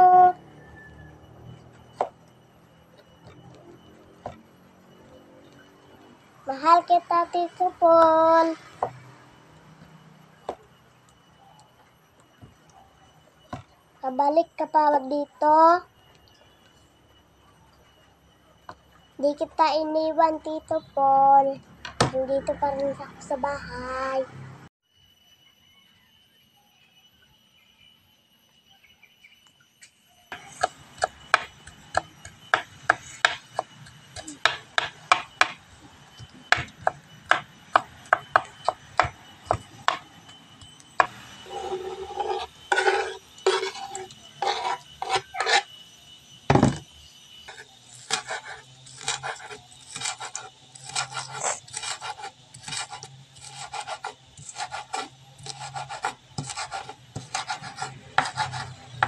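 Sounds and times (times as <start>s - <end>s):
knife chopping on wooden board: 48.0s - 58.6s.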